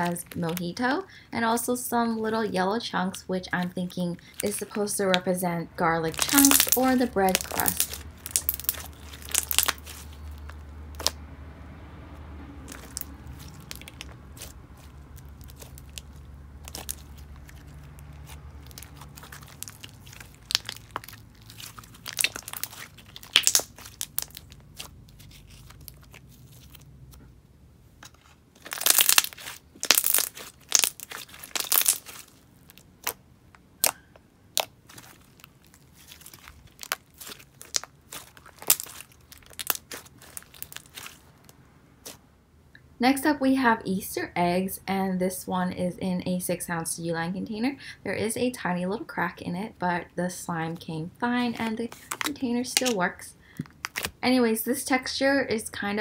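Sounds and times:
slime squishing with sticky pops: 3.5s - 5.3s, 6.0s - 11.2s, 12.6s - 27.3s, 28.0s - 42.2s, 51.4s - 53.0s, 53.6s - 54.2s.

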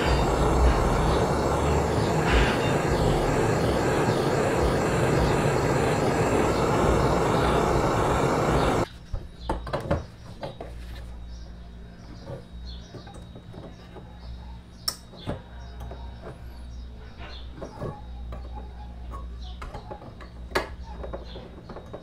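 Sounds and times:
gas torch flame hissing: 0.0s - 8.9s.

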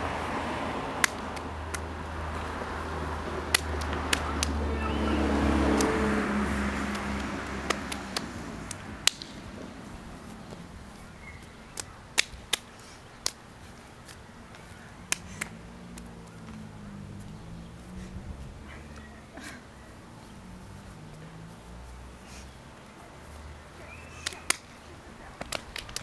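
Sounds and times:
hands clapping: 1.0s - 1.9s, 3.4s - 6.0s, 6.8s - 9.4s, 11.7s - 13.4s, 14.1s - 16.6s, 24.1s - 24.8s, 25.4s - 26.0s.

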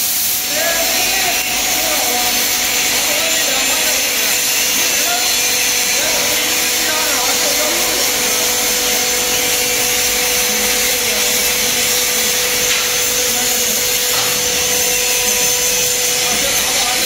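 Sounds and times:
laser cutter hissing: 0.0s - 17.0s.

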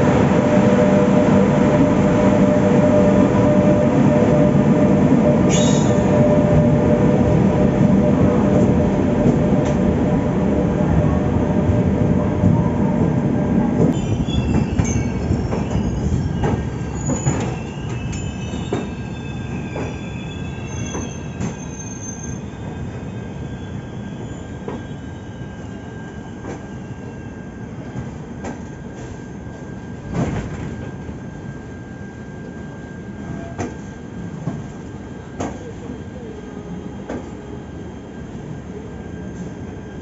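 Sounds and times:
train rumble: 0.0s - 24.9s
train wheels and brakes squealing: 0.4s - 9.9s, 13.8s - 36.2s, 36.8s - 40.0s.

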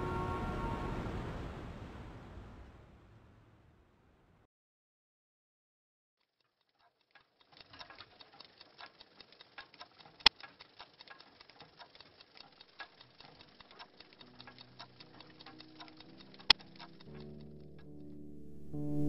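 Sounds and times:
rapid patter of small clicks: 6.3s - 17.9s.

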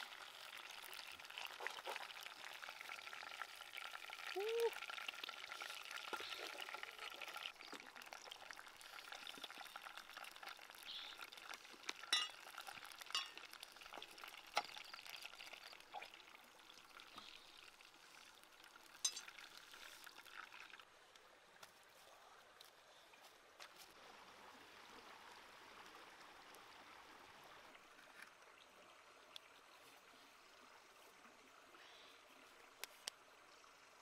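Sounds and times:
fish sizzling in hot oil: 0.0s - 20.8s.

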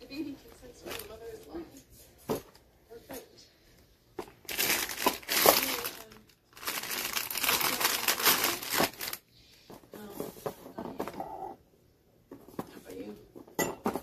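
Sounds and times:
plastic packaging crinkling: 0.6s - 1.4s, 4.2s - 9.3s.

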